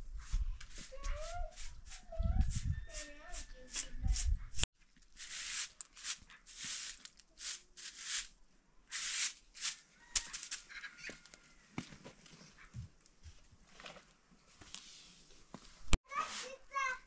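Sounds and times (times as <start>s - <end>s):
broom sweeping concrete steps: 5.1s - 10.6s, 14.6s - 17.0s.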